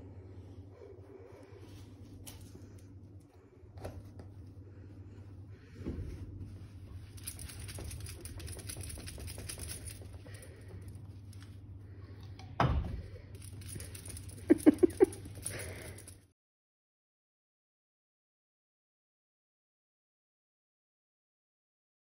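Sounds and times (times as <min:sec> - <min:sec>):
low steady hum: 0:00.0 - 0:16.3.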